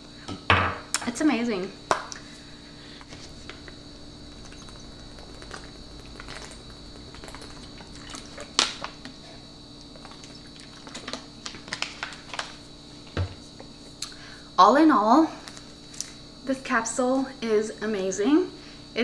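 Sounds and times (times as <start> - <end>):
person drinking: 2.2 - 11.1
plastic bottle crackling: 4.3 - 9.1, 10.0 - 12.6.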